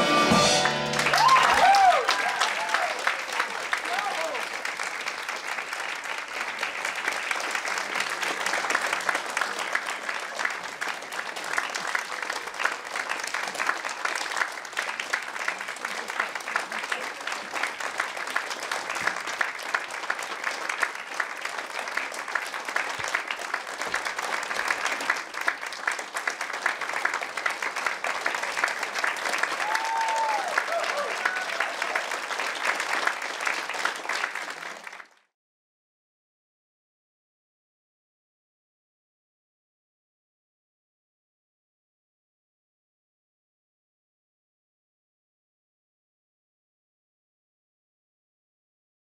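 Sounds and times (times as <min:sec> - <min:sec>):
audience applauding: 0:00.0 - 0:35.3.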